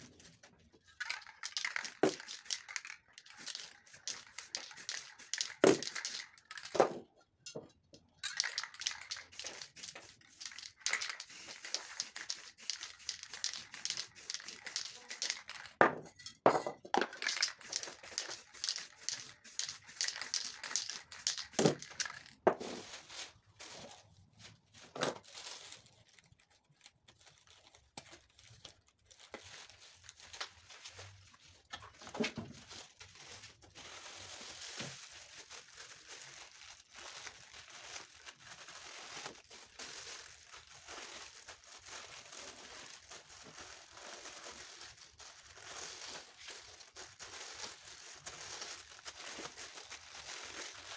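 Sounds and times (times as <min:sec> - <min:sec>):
plastic bag crinkling: 0:00.0 - 0:06.8, 0:08.2 - 0:15.8, 0:17.1 - 0:50.9
spray paint can hissing: 0:01.0 - 0:06.3, 0:08.3 - 0:15.6, 0:17.2 - 0:22.1.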